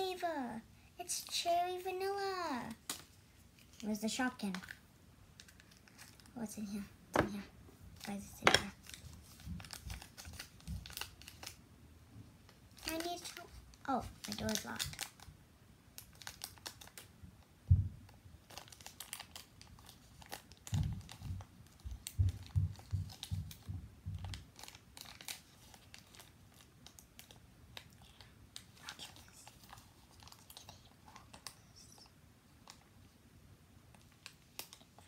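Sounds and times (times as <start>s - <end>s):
wrapper crinkling and tearing: 5.4s - 6.4s, 8.0s - 11.6s, 12.7s - 15.3s, 16.0s - 17.1s, 18.4s - 23.6s, 24.2s - 32.0s, 33.9s - 35.0s.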